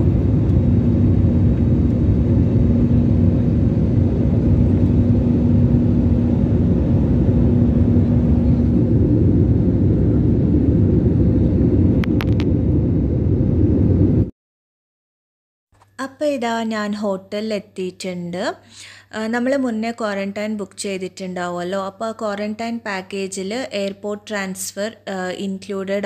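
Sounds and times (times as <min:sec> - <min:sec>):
airliner cabin drone in flight: 0:00.0 - 0:14.3.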